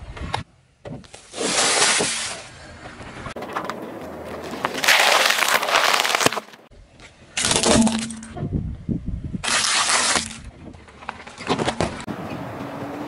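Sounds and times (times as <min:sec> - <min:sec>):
objects crunching under car tyre: 0:01.0 - 0:06.7, 0:09.4 - 0:12.1.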